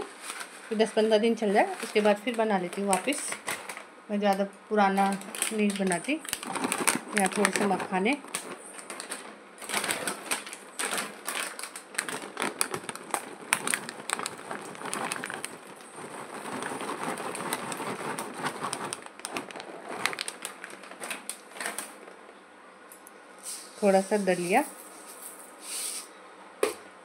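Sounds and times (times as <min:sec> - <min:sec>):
plastic packet crinkling: 0:00.0 - 0:22.2.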